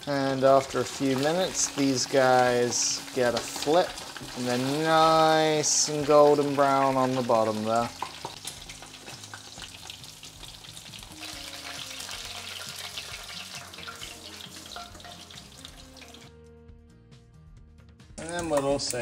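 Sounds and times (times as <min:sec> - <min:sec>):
chicken frying in hot oil: 0:00.0 - 0:16.3.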